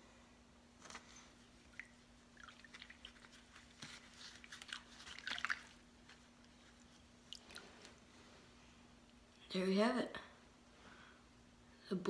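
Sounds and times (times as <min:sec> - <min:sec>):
water sloshing and splashing: 0:01.5 - 0:07.9.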